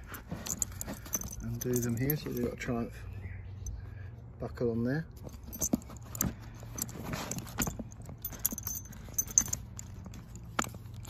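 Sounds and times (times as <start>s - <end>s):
leather strap sliding: 0.0s - 2.6s, 5.3s - 11.0s
metal buckle clinks and clicks: 0.0s - 2.7s, 5.2s - 11.0s.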